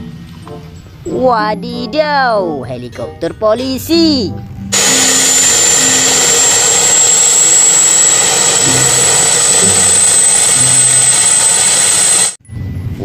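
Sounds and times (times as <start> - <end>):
jet engine roar with whine: 4.8 - 12.4.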